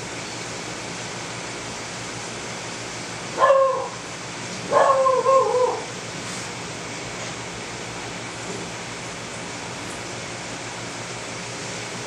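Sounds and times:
aquarium water and pump hiss: 0:00.0 - 0:12.0
whining animal cries: 0:03.4 - 0:04.0, 0:04.7 - 0:05.9.

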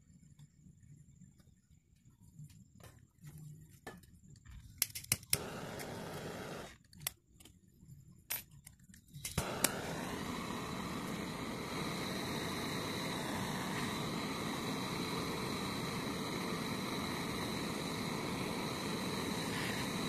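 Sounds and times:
gas torch igniter clicks: 0:04.8 - 0:07.2, 0:08.6 - 0:20.0
gas torch hissing: 0:05.0 - 0:06.8, 0:09.1 - 0:20.0.

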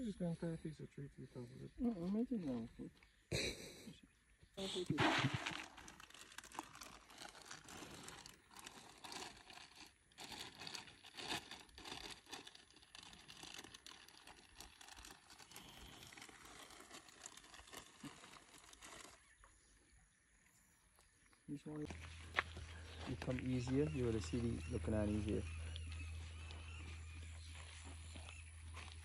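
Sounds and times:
faint crackling and rustling: 0:04.8 - 0:19.6.

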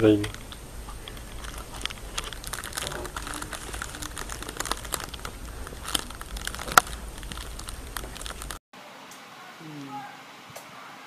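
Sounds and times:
low hum: 0:00.0 - 0:08.6
rustling and crinkling: 0:00.0 - 0:08.6.

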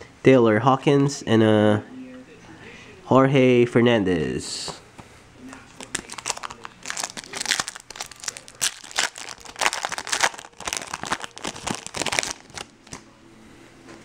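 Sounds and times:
foil wrapper crinkling: 0:05.6 - 0:13.0.

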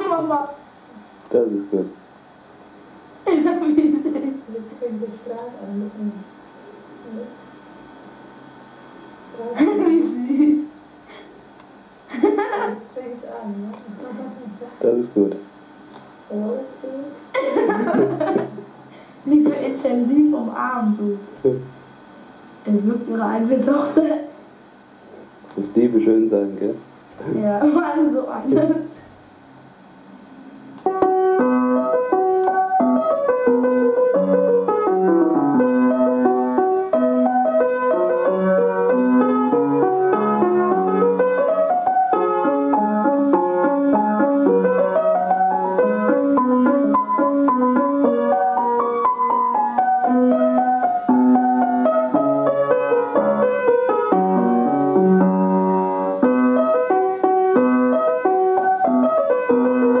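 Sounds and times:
piano playing runs: 0:16.2 - 0:24.4, 0:25.6 - 1:00.0.

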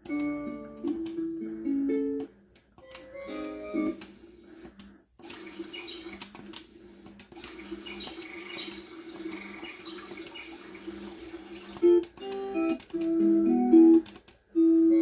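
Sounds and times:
recorded birdsong chirps: 0:03.7 - 0:12.0.

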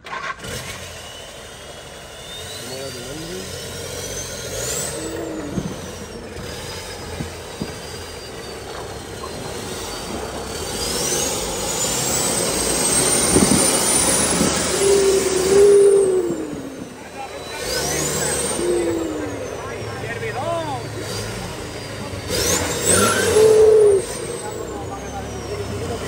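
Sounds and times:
turbocharged engine under load: 0:00.0 - 0:26.0
short low squeal: 0:04.1 - 0:20.0
turbo whistle: 0:13.0 - 0:19.8, 0:22.4 - 0:25.7.

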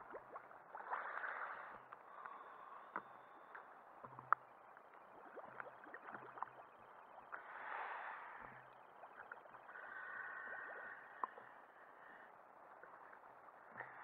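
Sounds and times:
small clicks and splashes: 0:00.0 - 0:07.5, 0:08.4 - 0:09.8
water lapping and gurgling: 0:00.0 - 0:14.0.

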